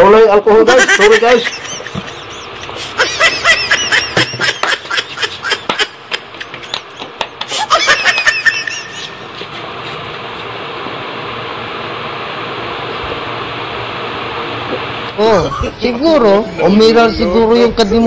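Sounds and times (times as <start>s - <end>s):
high-pitched laughter: 0.6s - 10.0s.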